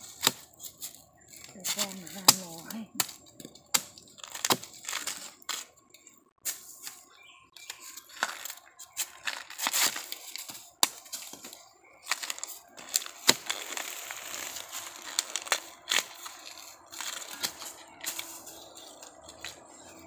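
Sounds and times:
husks tearing and rustling: 0:00.0 - 0:05.8, 0:07.6 - 0:20.0
bamboo husks cracking: 0:00.0 - 0:20.0.

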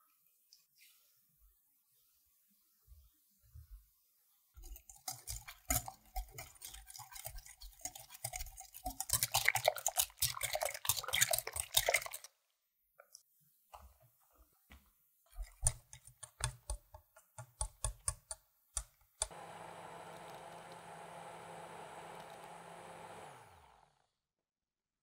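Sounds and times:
whisk beating in glass bowl: 0:04.7 - 0:12.2.

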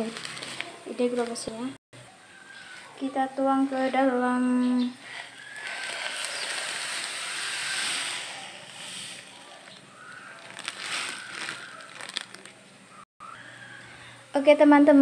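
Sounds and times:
plastic bag crackling: 0:00.0 - 0:01.7, 0:05.0 - 0:13.0
sugar pouring into plastic jar: 0:05.0 - 0:12.4.

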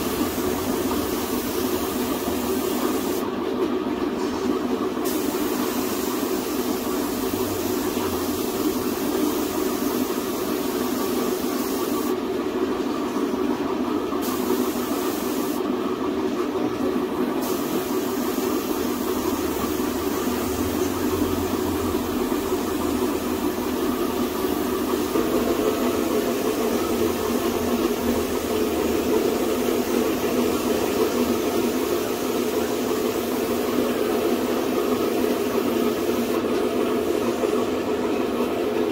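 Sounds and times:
paint spray gun hissing: 0:00.0 - 0:03.3, 0:05.0 - 0:12.2, 0:14.2 - 0:15.7, 0:17.4 - 0:21.1, 0:22.3 - 0:37.6
compressor air flow running: 0:00.0 - 0:38.9.

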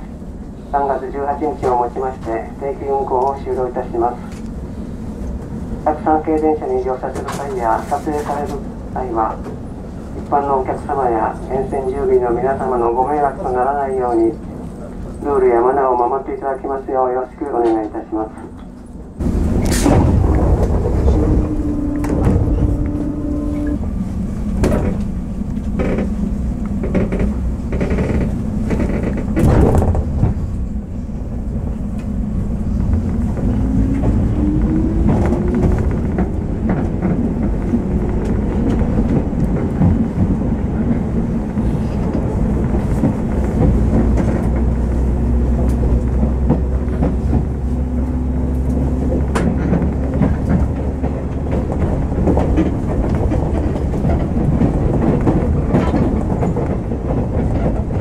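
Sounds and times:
train wheels rumbling on rails: 0:00.0 - 0:58.0
train knocks: 0:17.5 - 0:58.0
train motor whine: 0:19.2 - 0:30.5.

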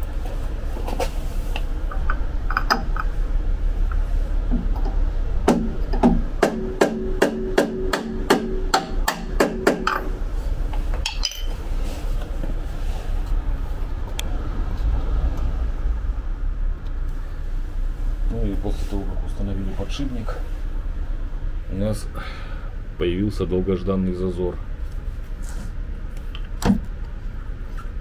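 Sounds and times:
hammer striking metal: 0:05.5 - 0:10.2.

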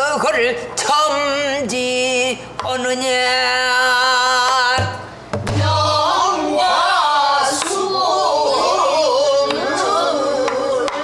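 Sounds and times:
barrel drum strikes: 0:04.8 - 0:06.2
woman singing with vibrato: 0:05.6 - 0:11.0.

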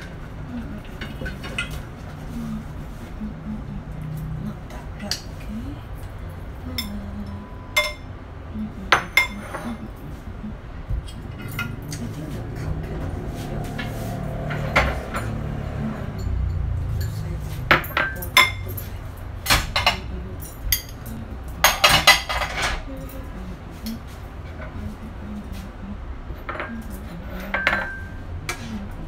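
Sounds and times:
dishes and cutlery clinking: 0:00.0 - 0:02.3, 0:06.7 - 0:08.1, 0:08.9 - 0:10.2, 0:11.0 - 0:23.2, 0:26.4 - 0:28.8.

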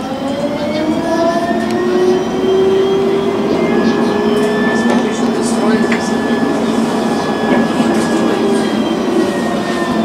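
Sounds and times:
tram motors whining: 0:00.0 - 0:10.0
wheels rumbling on rail: 0:00.0 - 0:10.0.

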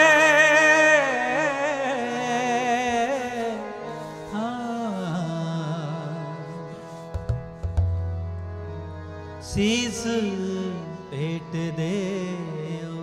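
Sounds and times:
man singing: 0:00.0 - 0:07.0, 0:09.4 - 0:13.0.

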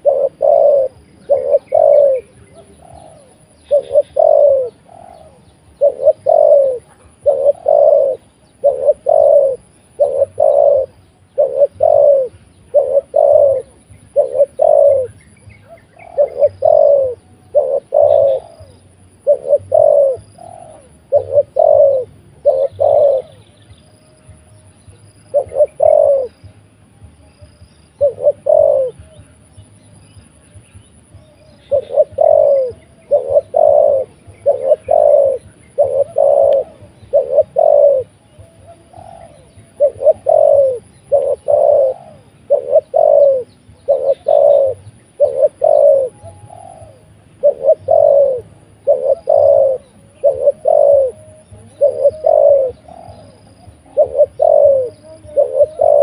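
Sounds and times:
dove cooing: 0:00.0 - 0:23.7, 0:24.8 - 0:26.5, 0:27.4 - 0:56.0.

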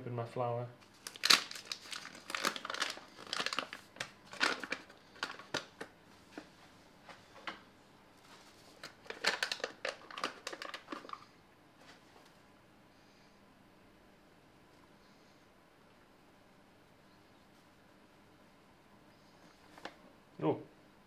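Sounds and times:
paper bag tearing and crinkling: 0:00.9 - 0:05.9, 0:08.8 - 0:11.2.

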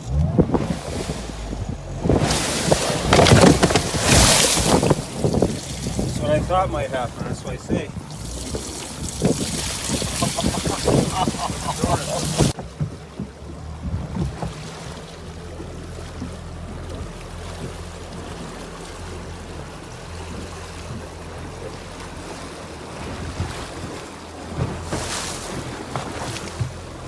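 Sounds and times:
wind on microphone: 0:00.0 - 0:15.0
choppy water: 0:00.0 - 0:27.0
outboard motor humming: 0:00.0 - 0:27.0.

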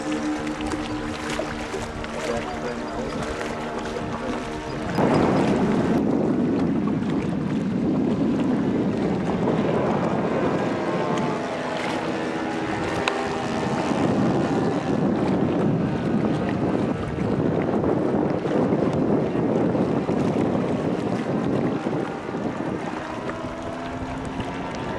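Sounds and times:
model plane propellers droning: 0:00.0 - 0:24.9
wind rumble on microphone: 0:00.0 - 0:24.9.

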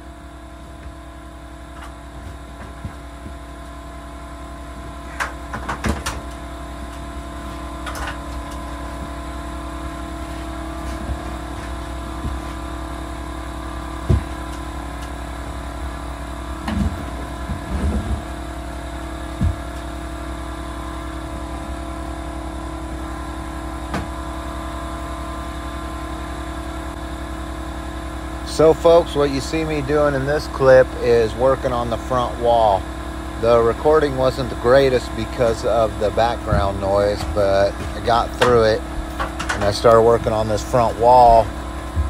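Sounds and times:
machine hum: 0:00.0 - 0:42.0
knocks and bangs on wooden wall: 0:14.0 - 0:14.4.

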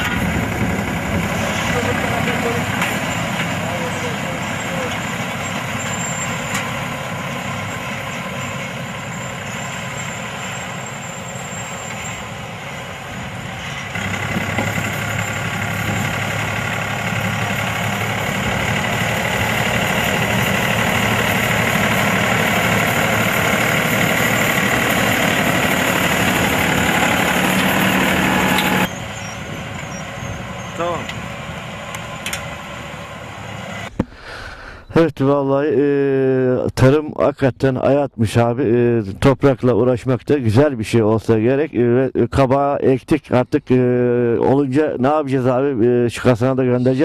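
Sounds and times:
tractor diesel engine running: 0:00.0 - 0:35.1.

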